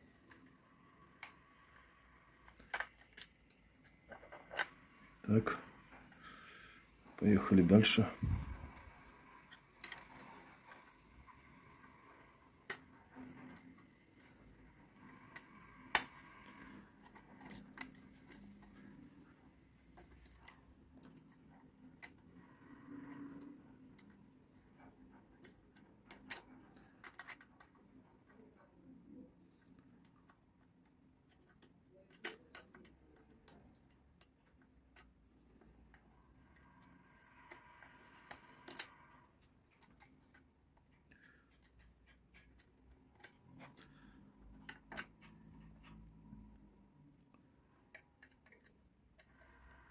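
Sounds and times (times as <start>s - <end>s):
lock pick metallic clicks and scrapes: 8.2s - 27.8s, 29.7s - 35.2s, 36.0s - 44.0s.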